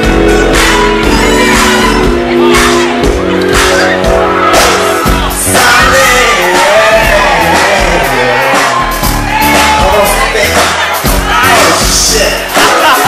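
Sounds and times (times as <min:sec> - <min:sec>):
live pop band playing: 0:00.0 - 0:13.0
man singing into microphone: 0:05.3 - 0:09.0, 0:09.7 - 0:13.0.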